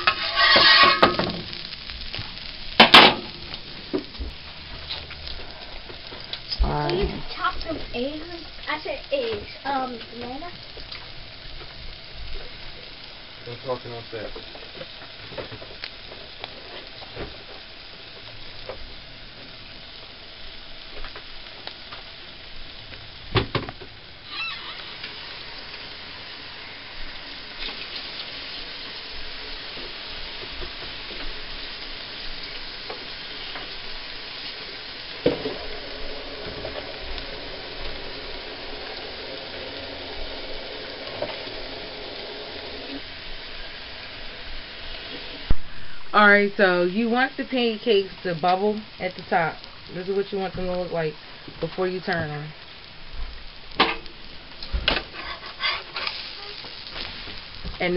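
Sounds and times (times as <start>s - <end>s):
batter sizzling on a griddle: 0.0s - 57.9s.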